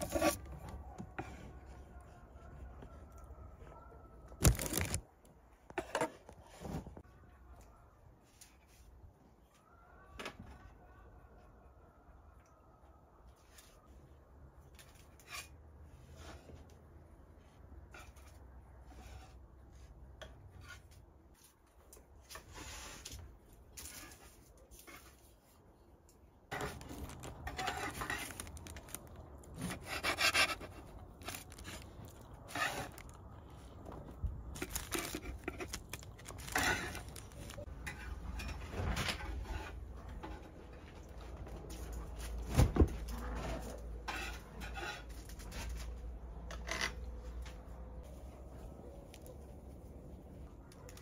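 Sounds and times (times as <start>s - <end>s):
pastries rustling on metal tray: 0.0s - 3.4s, 4.3s - 5.1s, 26.5s - 51.0s.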